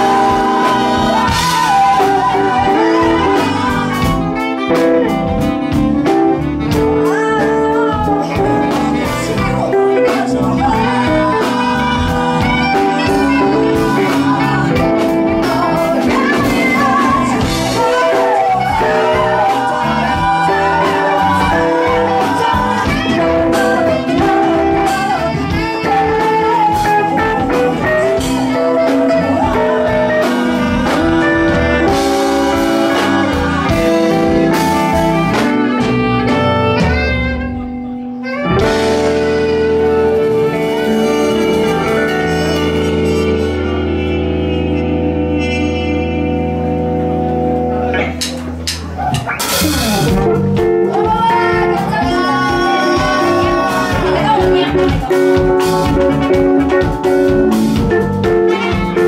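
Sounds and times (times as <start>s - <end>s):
people singing: 0.0s - 5.4s, 7.0s - 35.8s, 50.8s - 57.9s
drums: 0.0s - 59.0s
electric guitar: 0.0s - 59.0s
live band playing: 0.0s - 59.0s.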